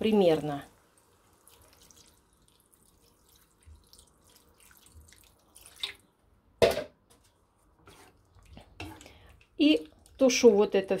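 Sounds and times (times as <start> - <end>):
water trickling into a pan: 0.8 - 6.1.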